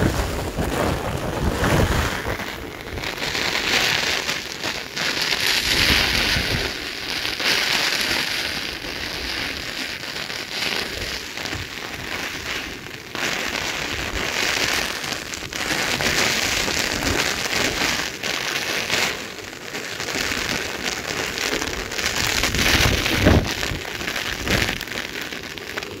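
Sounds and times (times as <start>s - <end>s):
wind buffeting microphone: 0.0s - 3.3s, 5.6s - 6.7s, 22.1s - 24.8s
heavy rain and hail: 0.0s - 26.0s.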